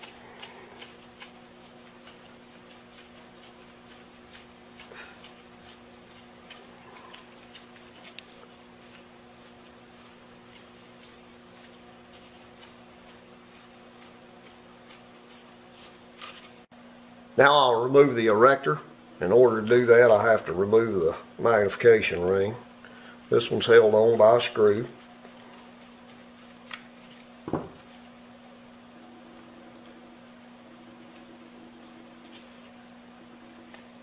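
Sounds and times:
gloved hands rubbing metal: 0:00.0 - 0:16.5
steady low hum: 0:00.0 - 0:34.0.

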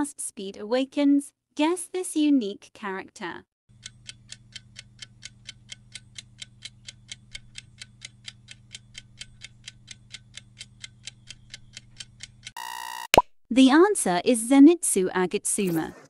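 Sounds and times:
clock ticking: 0:03.8 - 0:12.6.

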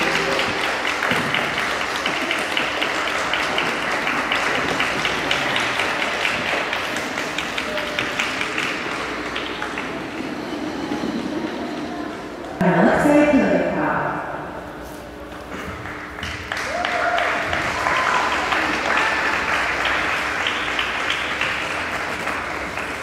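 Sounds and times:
audience applauding: 0:00.0 - 0:10.7, 0:15.7 - 0:23.0.

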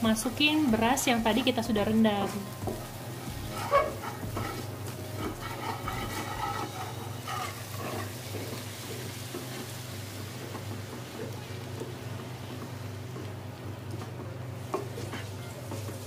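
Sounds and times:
food sizzling: 0:00.0 - 0:16.0
wooden spatula scraping wok: 0:00.2 - 0:11.4, 0:14.6 - 0:16.0.

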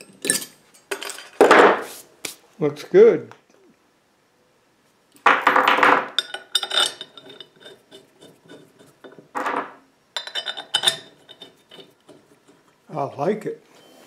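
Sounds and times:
metal clinking and scraping: 0:00.0 - 0:01.5, 0:05.2 - 0:12.8.

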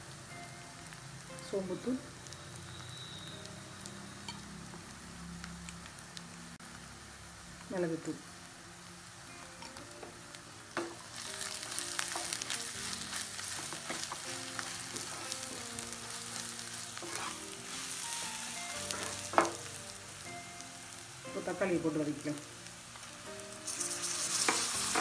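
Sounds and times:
spices sizzling in oil: 0:00.0 - 0:25.0
wooden spatula scraping pan: 0:17.0 - 0:17.5.

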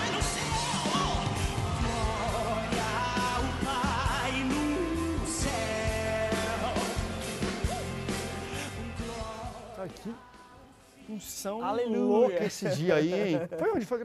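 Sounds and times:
band accompaniment: 0:00.0 - 0:09.8
man singing with vibrato: 0:00.0 - 0:10.8.

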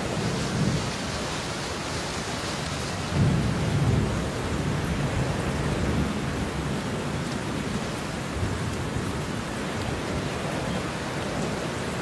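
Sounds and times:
heavy rain: 0:00.0 - 0:12.0
thunder rumbling: 0:03.1 - 0:07.1.

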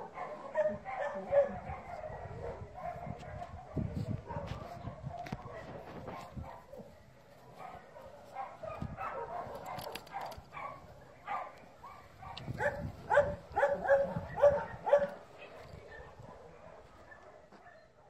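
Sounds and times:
dog yipping and barking: 0:00.1 - 0:03.4, 0:08.4 - 0:16.2.

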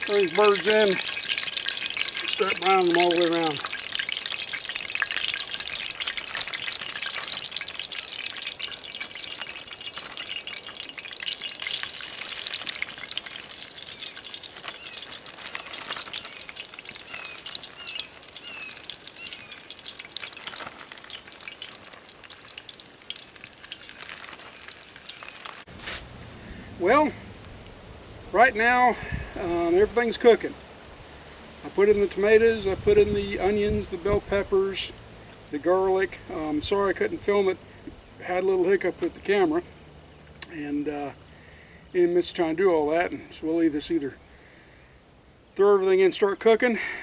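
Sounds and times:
meat frying in oil: 0:00.0 - 0:25.8.

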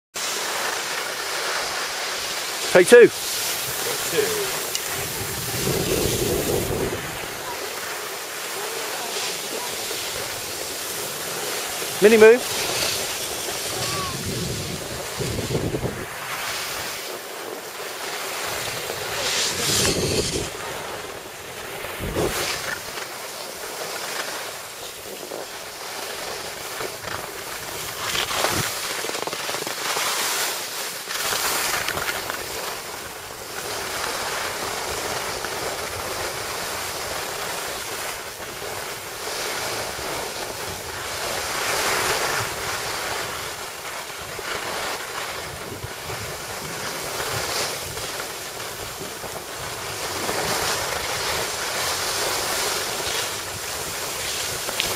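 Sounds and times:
skis scraping over snow: 0:00.2 - 0:54.9
wind buffeting microphone: 0:03.5 - 0:07.6, 0:09.8 - 0:16.9, 0:18.4 - 0:22.8.

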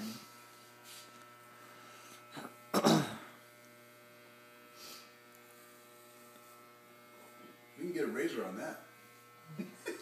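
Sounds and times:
electric hair clippers humming: 0:00.0 - 0:10.0
cough: 0:02.4 - 0:03.3.

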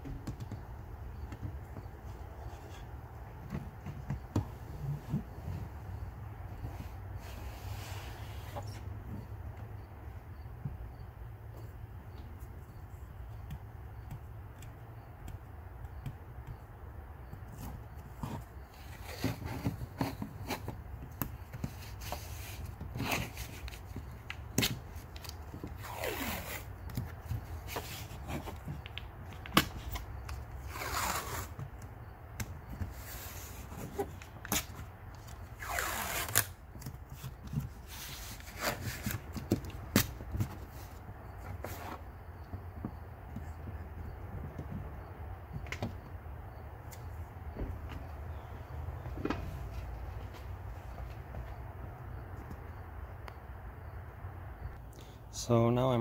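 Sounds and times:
clicks and rustles of tape: 0:17.4 - 0:42.6
tape pulled off roll: 0:17.5 - 0:42.1.

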